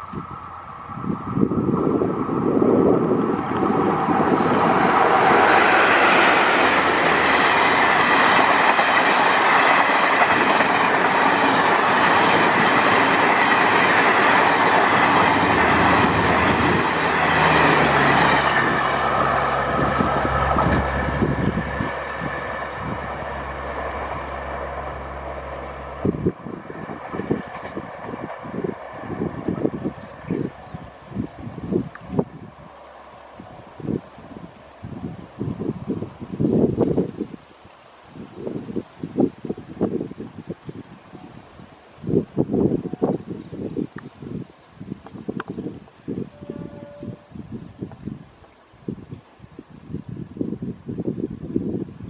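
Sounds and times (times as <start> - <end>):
train wheels rushing on rails: 0.0 - 37.1.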